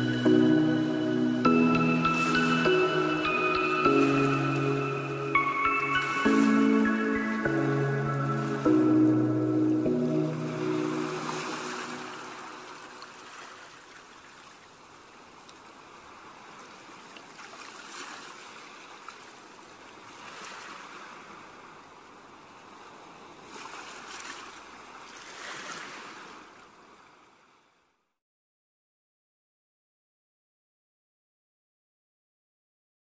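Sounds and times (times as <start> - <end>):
waves breaking on sandy beach: 1.4 - 8.9, 10.2 - 27.8.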